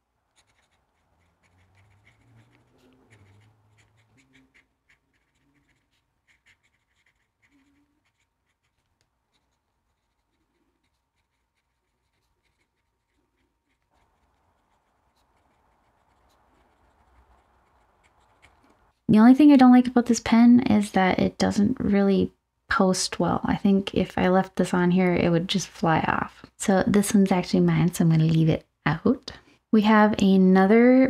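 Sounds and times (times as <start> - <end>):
pen nib scratching paper: 0.3 - 19.0.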